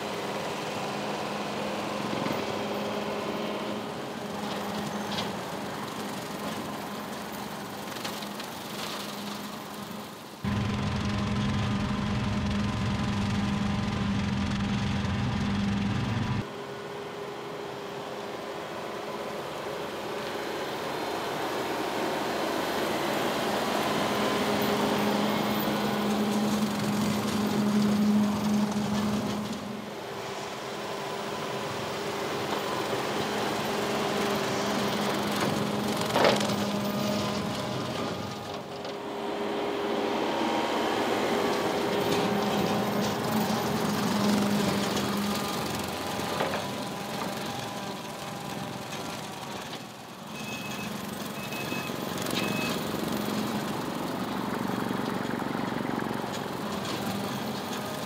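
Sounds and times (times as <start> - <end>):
tractor diesel engine: 0.0 - 58.0.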